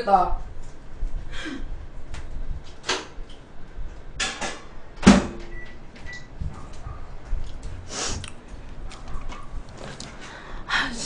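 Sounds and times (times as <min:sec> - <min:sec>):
microwave door shutting: 0:04.2 - 0:06.2.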